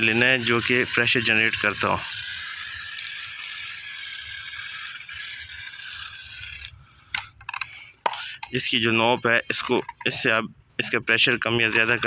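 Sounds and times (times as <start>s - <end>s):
sprayer hissing: 0.0s - 6.7s.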